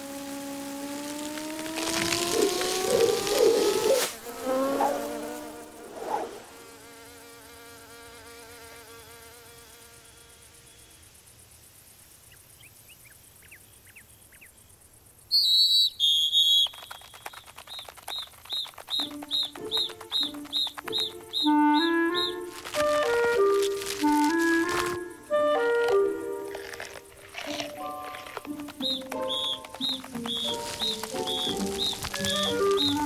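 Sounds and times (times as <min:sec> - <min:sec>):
cartoon insect wing buzz: 0:00.0 - 0:10.9, 0:19.6 - 0:33.0
high chirps: 0:15.4 - 0:26.1, 0:27.5 - 0:33.0
fast ticking: 0:16.7 - 0:22.4, 0:28.4 - 0:33.0.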